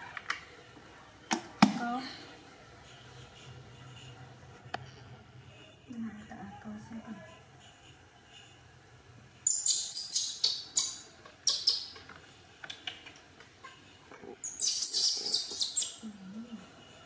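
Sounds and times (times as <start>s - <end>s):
baby monkey squealing: 9.4s - 12.0s, 14.4s - 16.0s.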